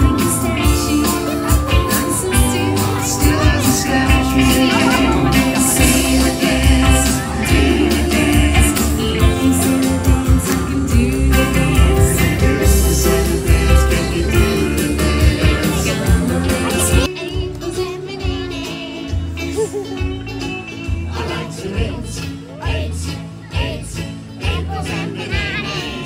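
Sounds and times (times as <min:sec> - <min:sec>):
heavy bass beat: 0:00.0 - 0:17.1
live band with singing: 0:00.0 - 0:26.0.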